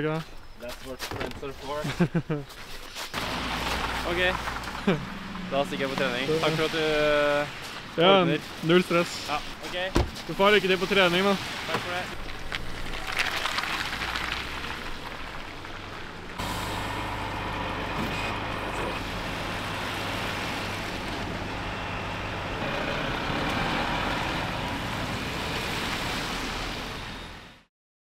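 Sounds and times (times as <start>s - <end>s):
road traffic passing: 3.1s - 27.7s
truck engine humming: 3.2s - 8.0s, 12.2s - 27.6s.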